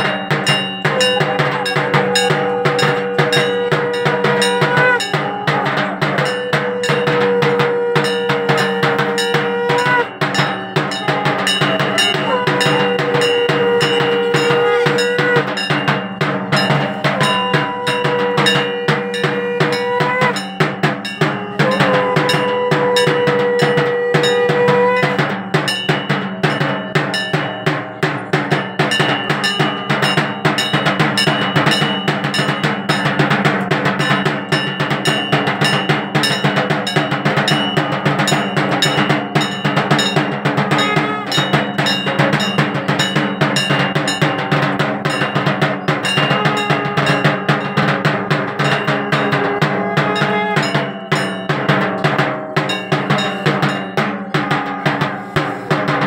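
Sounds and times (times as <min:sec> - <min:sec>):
held steady tone: 0:00.0 - 0:27.4
fast drumming: 0:00.0 - 0:56.0
metal percussion: 0:00.0 - 0:56.0.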